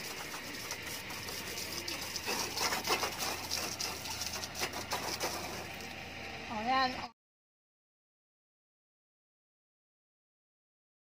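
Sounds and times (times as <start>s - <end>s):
hose water splashing: 0.0s - 6.0s.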